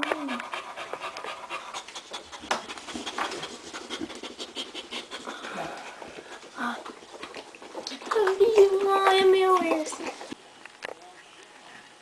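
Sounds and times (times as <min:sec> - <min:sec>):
dog panting rapidly: 0:00.0 - 0:08.7.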